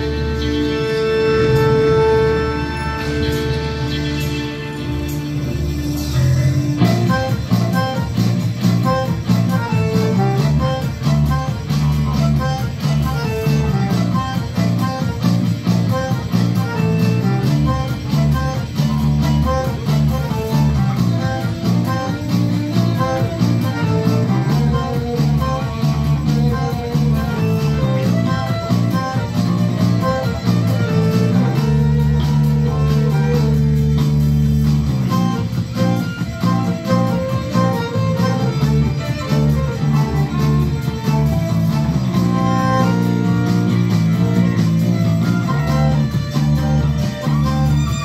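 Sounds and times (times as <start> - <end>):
electric bass guitar: 0.0 - 48.0
electronic accompaniment: 0.0 - 48.0
violin: 0.0 - 48.0.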